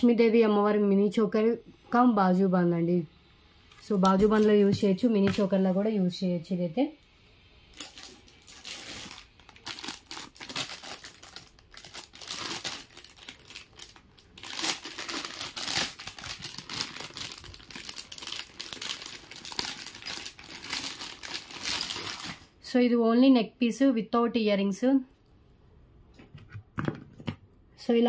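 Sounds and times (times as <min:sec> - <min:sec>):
plastic packaging crinkling: 0:03.8 - 0:05.6, 0:07.7 - 0:22.5.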